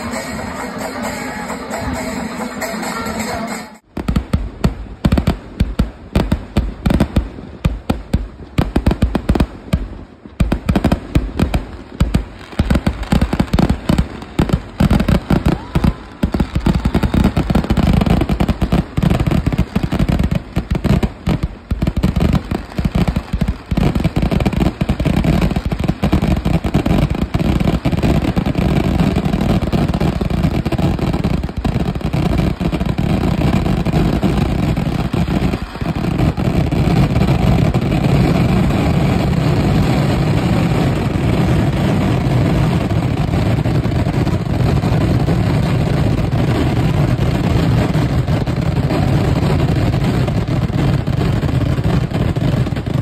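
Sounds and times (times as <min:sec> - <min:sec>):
fireworks bangs and crackling: 0:00.0 - 0:53.0.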